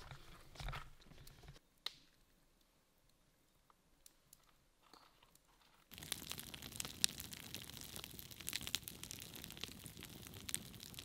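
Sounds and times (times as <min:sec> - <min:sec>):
campfire crackling and popping: 0:01.8 - 0:04.6, 0:05.3 - 0:11.0.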